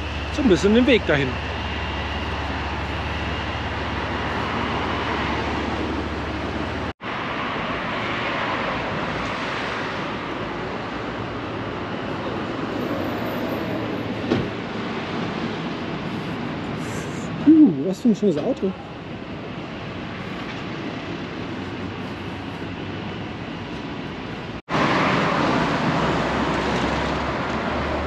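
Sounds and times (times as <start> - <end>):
passing cars rushing: 0.0 - 28.0.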